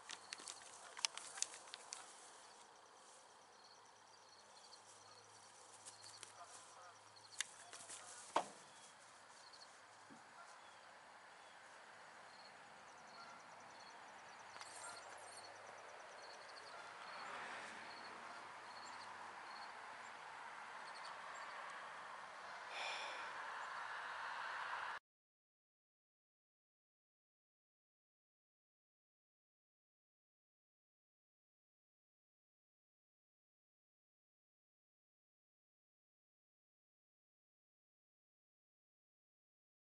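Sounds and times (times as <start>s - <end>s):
insects chirping: 0.0s - 19.8s.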